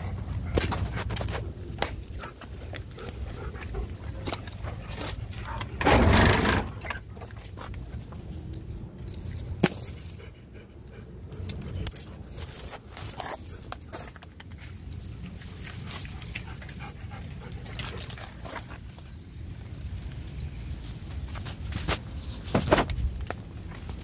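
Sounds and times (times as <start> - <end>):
metal tags jingling: 1.2 - 7.2, 8.4 - 19.7.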